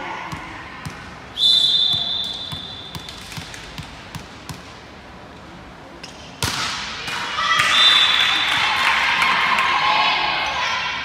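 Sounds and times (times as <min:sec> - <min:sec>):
referee whistle blast: 0:01.4 - 0:02.9
volleyball bouncing on gym floor: 0:01.8 - 0:04.8, 0:06.1 - 0:07.8.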